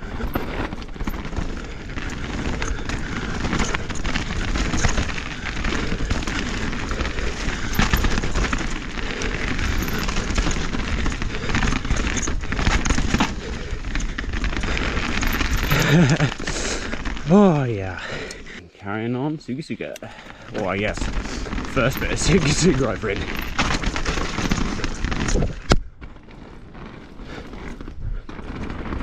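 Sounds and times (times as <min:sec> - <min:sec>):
tyres crunching on gravel: 0:00.0 - 0:18.3, 0:19.5 - 0:29.0
bike rattling and clacking: 0:00.0 - 0:18.6, 0:20.0 - 0:29.0.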